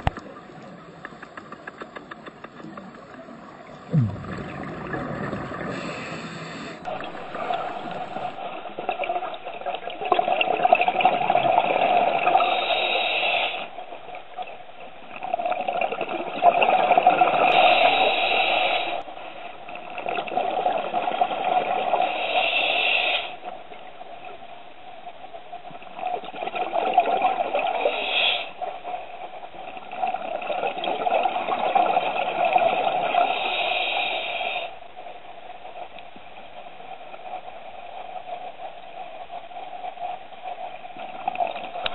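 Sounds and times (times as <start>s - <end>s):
diver breathing through regulator: 3.9s - 8.4s, 17.4s - 19.0s, 33.2s - 34.8s.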